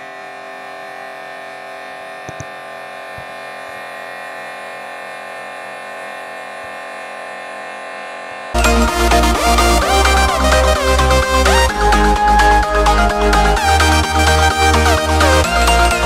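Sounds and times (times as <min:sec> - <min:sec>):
pressure washer motor hum: 0:00.0 - 0:16.0
electronic dance music: 0:08.6 - 0:16.0.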